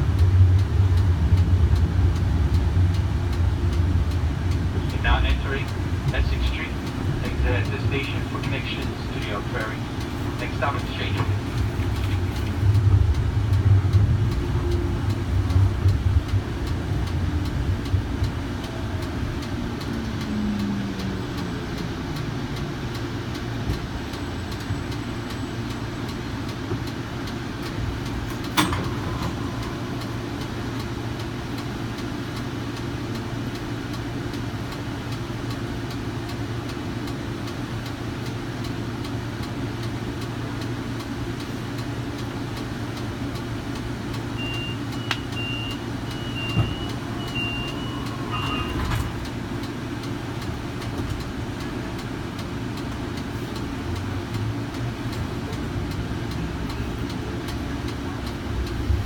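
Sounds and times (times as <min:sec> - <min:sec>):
steady hum: 0:00.0 - 0:23.3
electric train drive whining: 0:00.0 - 0:33.5
low running rumble: 0:00.0 - 0:35.0.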